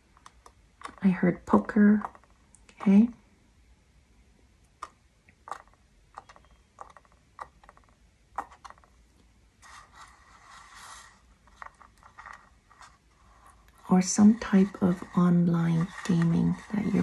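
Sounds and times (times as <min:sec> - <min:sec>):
soft scraping: 0:09.6 - 0:17.0.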